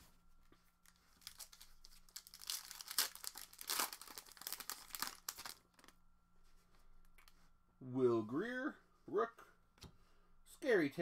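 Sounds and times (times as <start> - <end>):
foil wrapper tearing and crinkling: 1.2 - 5.9.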